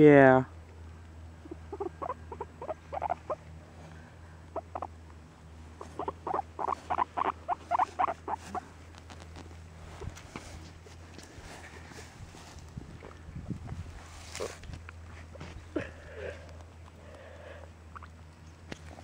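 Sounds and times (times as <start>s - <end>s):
guinea pig squeaking: 1.4s - 3.4s, 4.6s - 4.9s, 5.8s - 8.6s.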